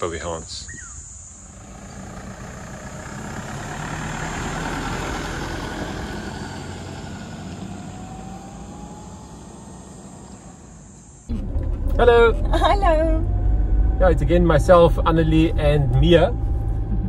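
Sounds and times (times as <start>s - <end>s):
vehicle driving past on gravel: 1.5s - 12.5s.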